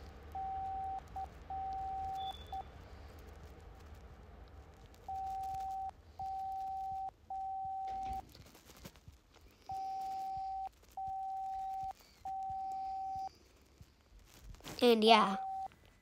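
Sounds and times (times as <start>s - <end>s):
telegraph key beep tone: 0.4s - 2.7s, 5.1s - 8.2s, 9.7s - 13.3s.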